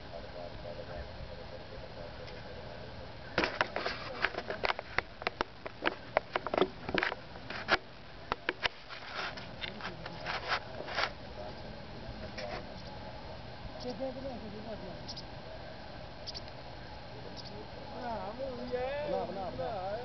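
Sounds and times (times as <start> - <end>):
sharp clicks and scrapes: 3.4 - 11.1.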